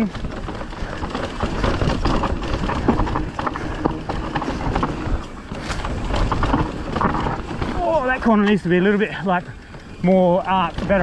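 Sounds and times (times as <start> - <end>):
bike knocking and rattling: 0.0 - 11.0
tyres rumbling on dirt: 0.0 - 11.0.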